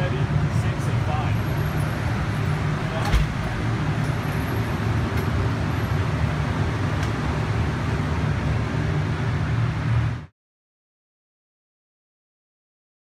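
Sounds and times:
low rumbling background noise: 0.0 - 10.3.

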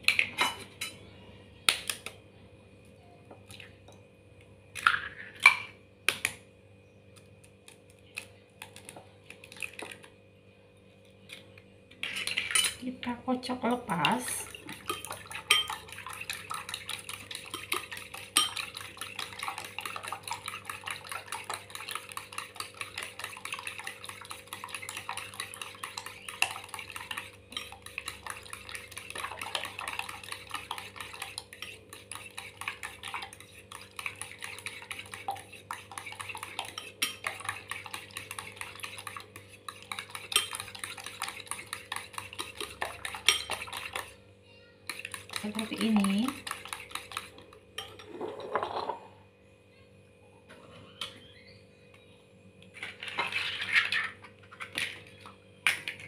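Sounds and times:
whisk clicking against bowl: 13.9 - 44.2, 44.8 - 47.9.

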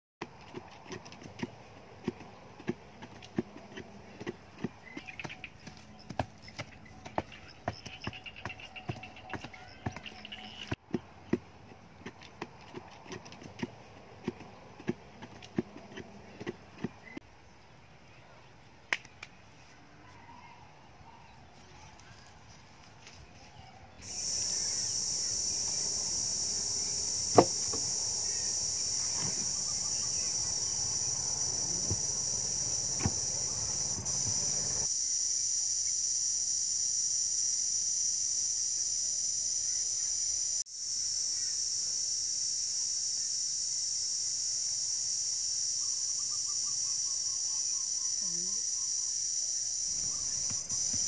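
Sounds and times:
high-pitched insect chorus: 24.0 - 51.0
sharp knocks: 27.3 - 27.9, 32.9 - 34.5.

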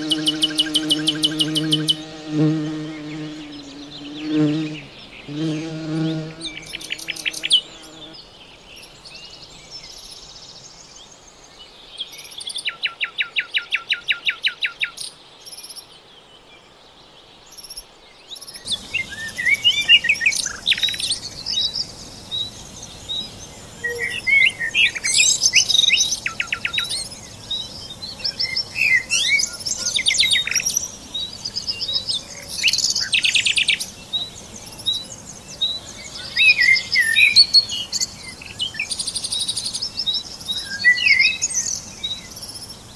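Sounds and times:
songbirds chirping and whistling: 0.0 - 42.9.

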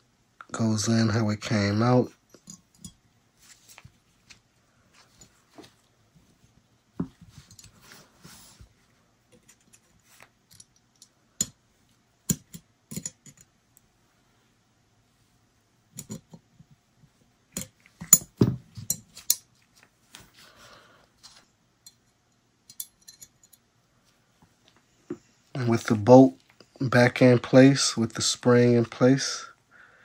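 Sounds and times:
metal clicks and taps: 12.3 - 13.5, 21.8 - 23.6.

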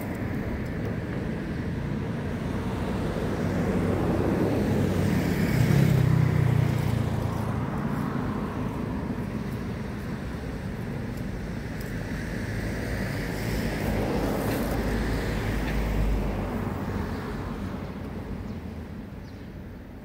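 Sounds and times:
vehicle passing by: 1.6 - 10.7.

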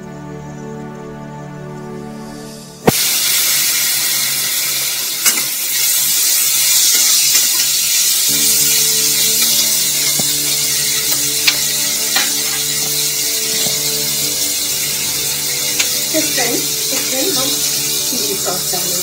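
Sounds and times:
vegetables sizzling in hot oil: 2.8 - 19.0
metal spatula scraping pan: 5.3 - 18.4.

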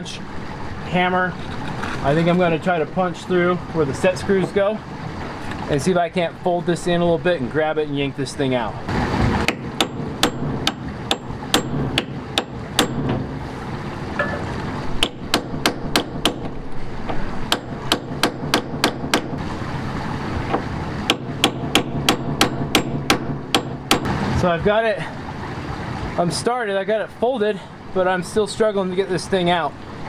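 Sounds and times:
hammer striking steel punch: 9.5 - 13.3, 15.0 - 16.6, 17.5 - 19.4, 21.1 - 24.1.

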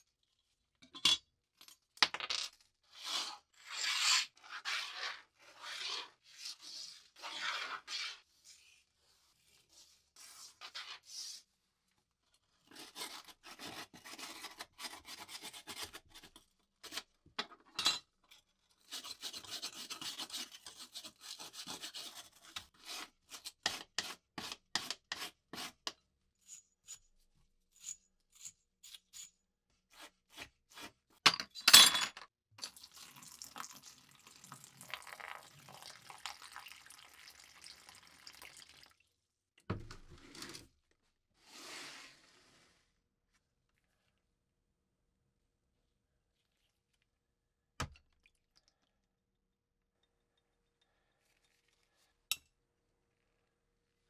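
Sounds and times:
liquid pouring into plastic tub: 32.6 - 39.2.

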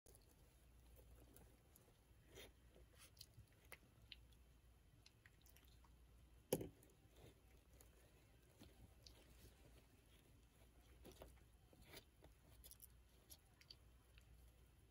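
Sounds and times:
rustling and scratching in shavings: 7.1 - 14.9.

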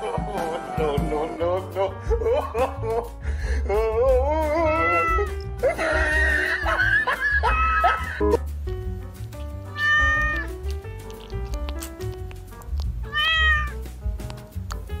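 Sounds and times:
background music: 0.0 - 15.0
cat meowing: 4.7 - 5.3, 9.6 - 10.6, 13.0 - 13.8.

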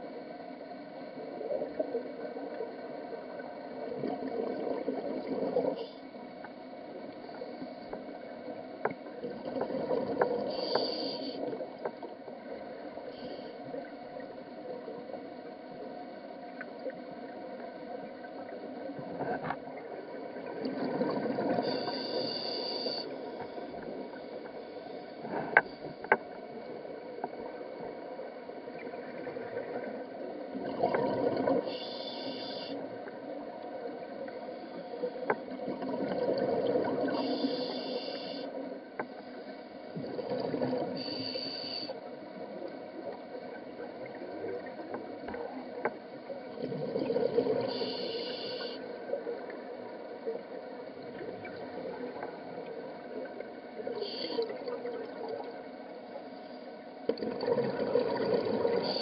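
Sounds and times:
diver breathing through regulator: 10.5 - 11.4, 21.6 - 23.1, 31.6 - 32.8, 37.1 - 38.6, 41.0 - 42.0, 47.7 - 48.9.

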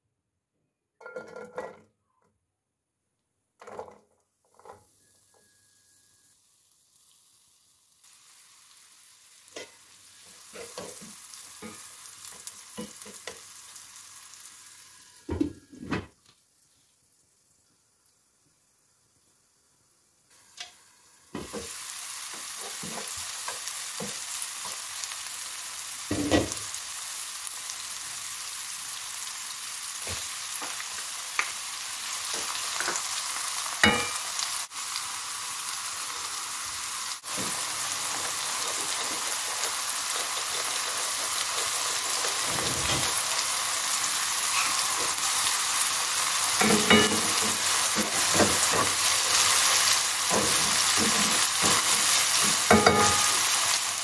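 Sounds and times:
vegetables sizzling in oil: 3.6 - 54.0.

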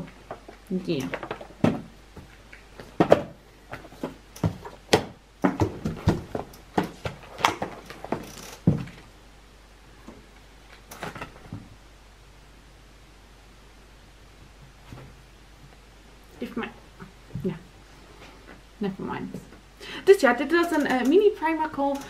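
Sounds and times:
box packaging knocks and rustles: 1.2 - 9.0.

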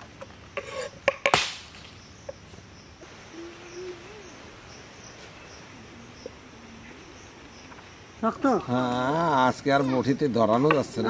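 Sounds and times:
outdoor ambience: 0.0 - 11.0
faint high chirping: 1.9 - 10.6.

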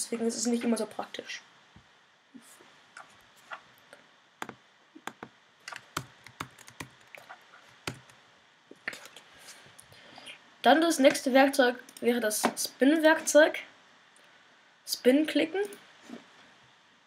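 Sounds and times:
keyboard and mouse clicks: 4.4 - 8.2.

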